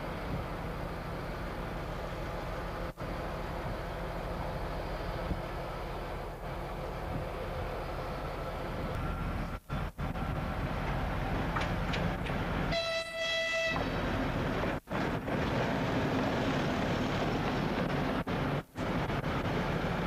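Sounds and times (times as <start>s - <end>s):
diesel locomotive engine running: 0.0s - 20.0s
locomotive horn blast: 12.7s - 13.9s.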